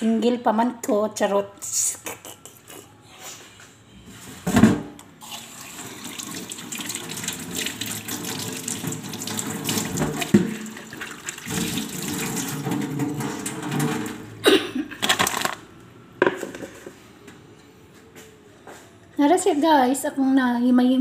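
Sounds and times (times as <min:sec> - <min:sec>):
tap water running into sink: 0:05.2 - 0:14.2.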